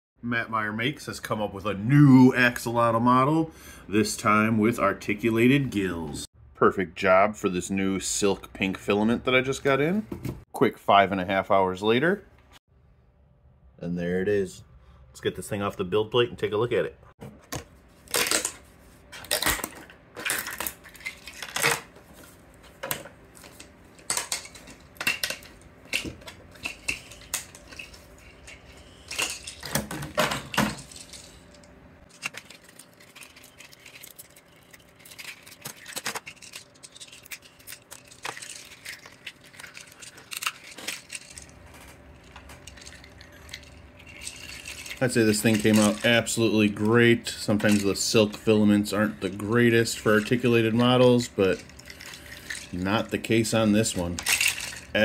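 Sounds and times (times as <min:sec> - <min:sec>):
plastic segments clacking: 0:22.8 - 0:46.4, 0:47.5 - 0:48.5, 0:49.7 - 0:55.0.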